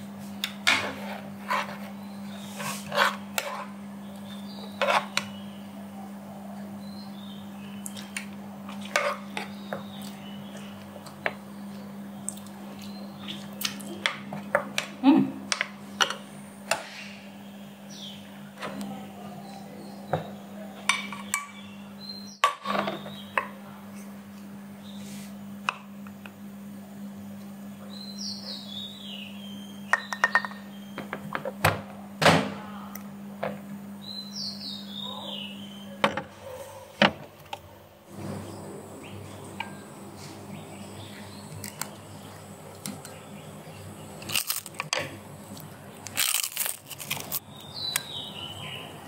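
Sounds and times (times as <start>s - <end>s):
bird chirping: 21.2s - 23.4s, 27.8s - 31.0s, 34.0s - 36.0s, 38.4s - 44.3s, 47.4s - 49.0s.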